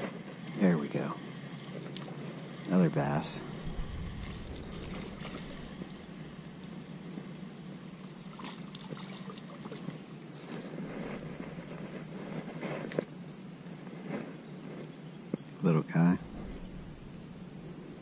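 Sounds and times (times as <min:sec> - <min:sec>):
high-pitched insect chorus: 0:00.0 - 0:18.0
faint water splashing: 0:03.4 - 0:06.8, 0:07.9 - 0:12.0.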